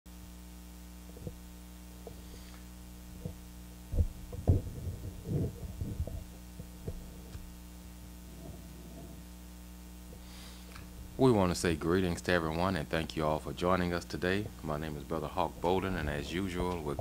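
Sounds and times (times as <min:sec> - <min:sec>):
low hum: 0:00.1 - 0:17.0
microphone handling thumps: 0:01.1 - 0:09.3, 0:15.3 - 0:17.0.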